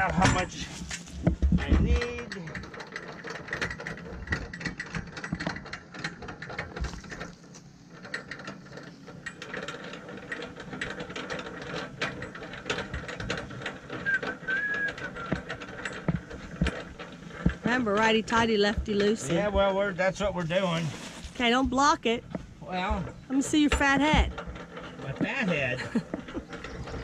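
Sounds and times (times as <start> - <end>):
stand clicking and rattling: 0.0 - 27.0
stand scraping on gravel: 9.7 - 27.0.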